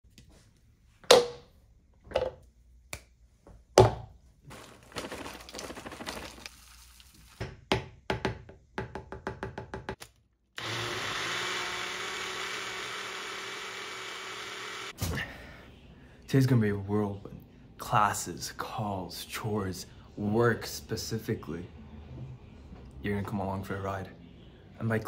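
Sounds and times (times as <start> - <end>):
blueberries rattling into plastic cup: 4.5 - 6.8
blender motor running: 10.6 - 15.0.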